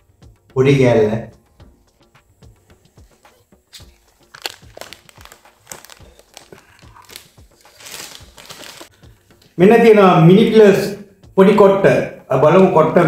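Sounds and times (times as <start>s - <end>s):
plastic wrapper crinkling: 3.7s - 9.0s.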